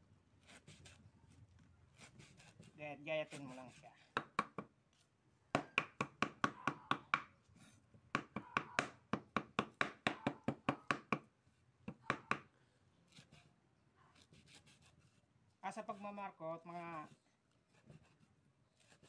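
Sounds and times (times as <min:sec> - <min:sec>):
knife chopping on wooden board: 0:04.2 - 0:04.7, 0:05.6 - 0:07.3, 0:08.1 - 0:11.3, 0:11.9 - 0:12.5.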